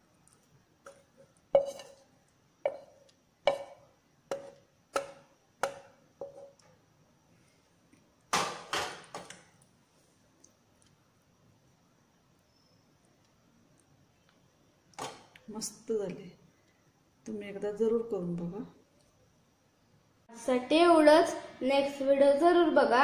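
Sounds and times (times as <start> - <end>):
metal spoon tapping metal pot: 0.9 - 2.0, 2.7 - 6.6
spoon clatter and scrape: 0.9 - 2.0.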